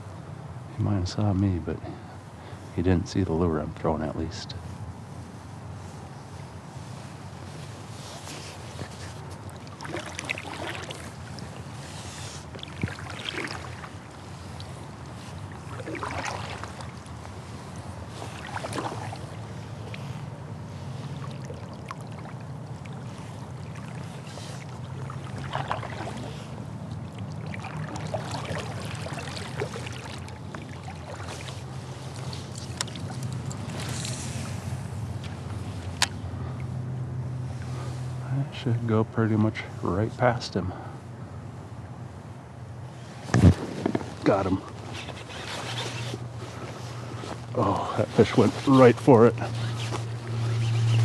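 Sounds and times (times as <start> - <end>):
steady low hum: 0.0 - 51.0
kayak paddle splashing: 7.8 - 36.7, 43.2 - 51.0.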